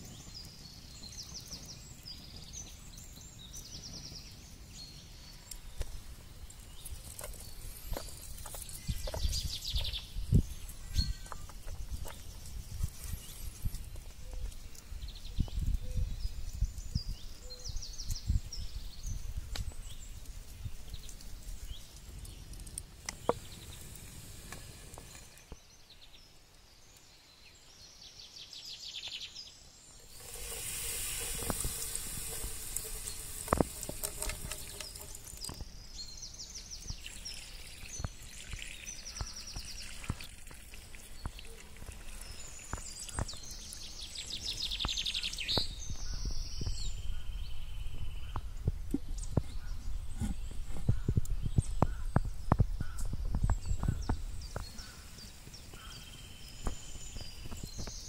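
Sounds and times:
small birds chirping: 0.0 - 58.0
hot oil sizzling in frying pan: 30.0 - 35.5.

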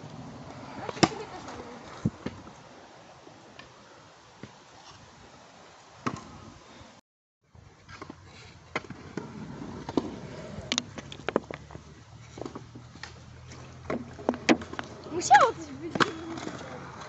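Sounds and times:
scooters clacking on asphalt: 0.1 - 2.6, 7.8 - 17.0.

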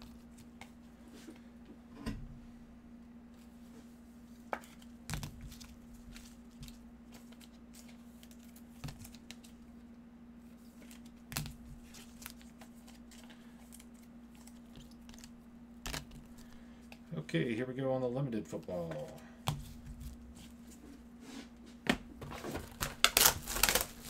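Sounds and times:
faint hum: 0.0 - 24.0
plastic wrap tearing and crinkling: 10.8 - 16.5, 22.3 - 24.0.

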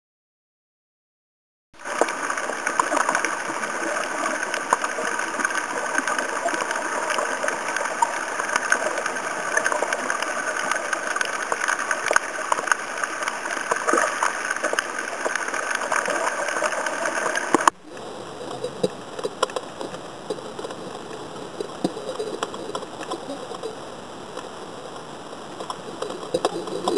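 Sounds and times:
underwater clicks and crackles: 1.8 - 26.9.

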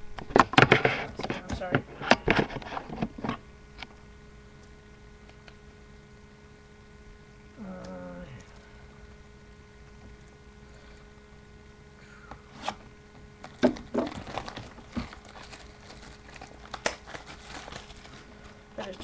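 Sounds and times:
plastic shrink-wrap tearing: 13.4 - 18.6.

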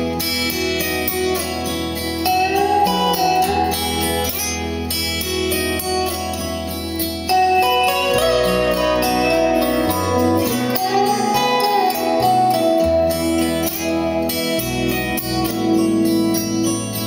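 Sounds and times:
instrumental music through speakers: 0.0 - 17.0.

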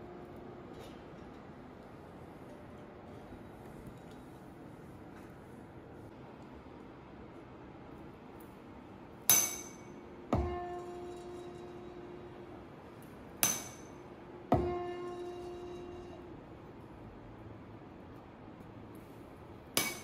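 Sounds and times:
steady resonating fork tone: 9.2 - 17.1
tuning fork high ring: 10.4 - 12.6, 14.6 - 16.5.

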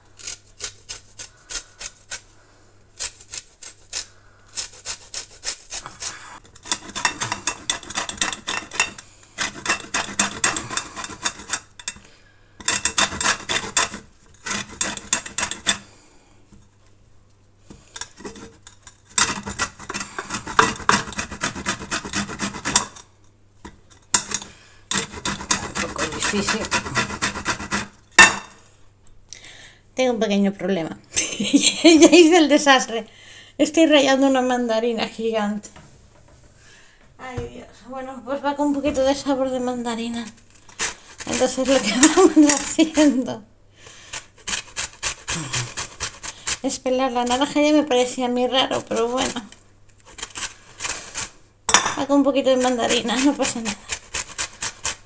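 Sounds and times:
peel grated on metal grater: 0.0 - 2.3, 3.0 - 12.0, 12.6 - 15.9, 17.9 - 23.1, 24.1 - 28.0, 39.6 - 43.3, 44.1 - 51.4, 52.3 - 55.0.

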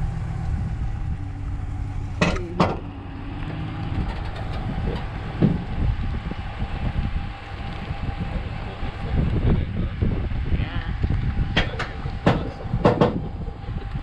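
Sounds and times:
truck engine running: 0.0 - 14.0
sharp knocks: 2.2 - 2.9, 11.6 - 13.3.

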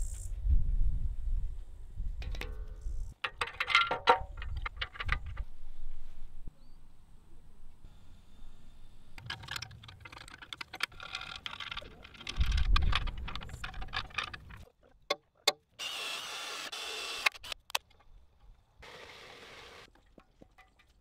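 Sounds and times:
tools clicking and knocking: 2.2 - 5.4, 9.2 - 15.7.

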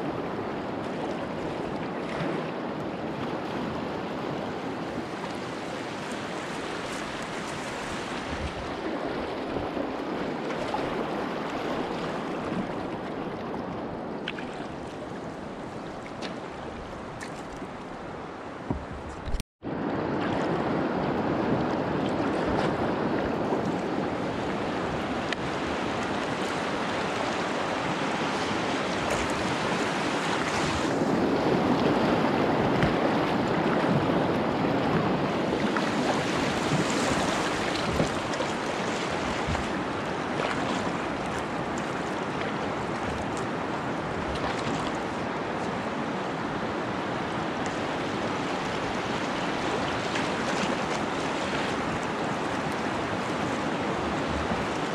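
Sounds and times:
river rapids rushing: 22.4 - 54.9.

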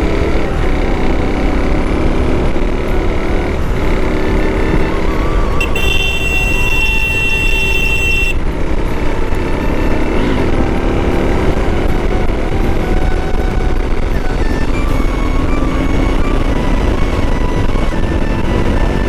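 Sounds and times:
motorcycle engine rumble: 0.0 - 19.0
wind noise: 0.0 - 19.0
vehicle horn blast: 5.4 - 8.5.

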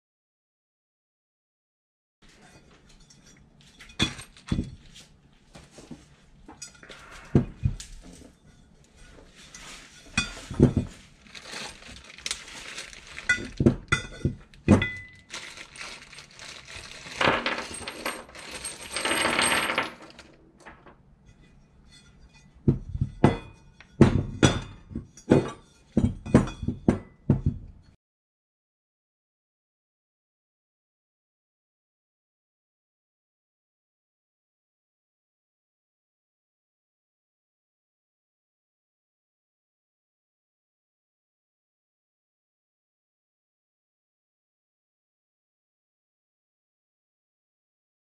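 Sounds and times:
metal parts knocking on workbench: 3.9 - 4.8, 10.2 - 20.9
plastic bag rustling: 9.4 - 20.9
small bolts clinking: 14.6 - 20.9.

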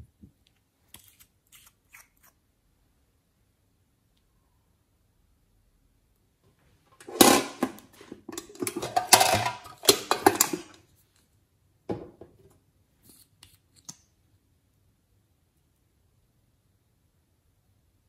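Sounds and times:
makeup case clattering and clicking: 7.0 - 10.8.

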